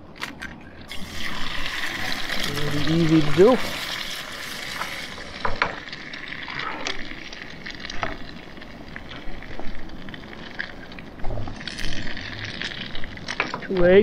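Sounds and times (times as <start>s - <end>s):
eggs sizzling in skillet: 0.8s - 14.0s.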